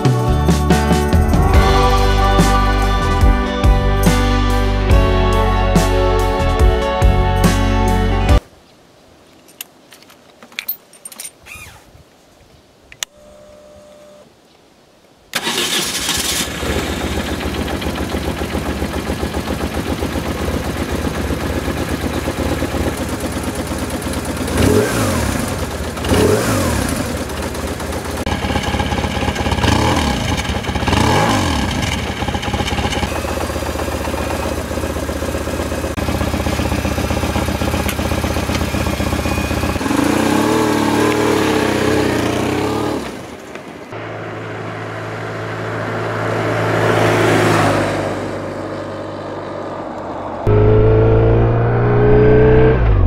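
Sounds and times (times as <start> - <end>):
motorcycle engine idling and revving: 15.4 - 53.0.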